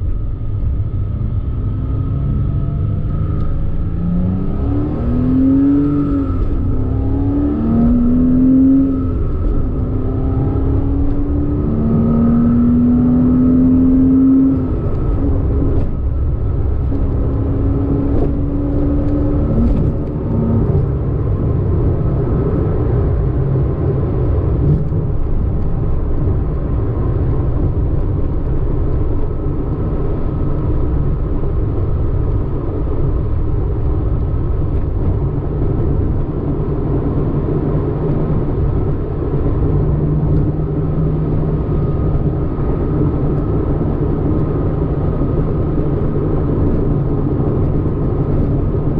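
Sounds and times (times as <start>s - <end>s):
road and tyre noise: 0.0s - 48.9s
car engine revving: 0.6s - 32.5s.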